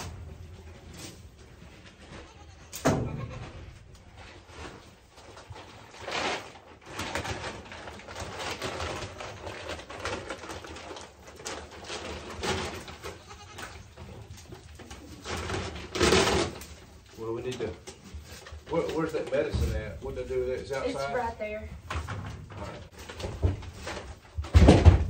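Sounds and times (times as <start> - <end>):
straw and feed rustling: 0.0 - 25.0
goats bleating: 2.2 - 3.6, 13.1 - 13.7.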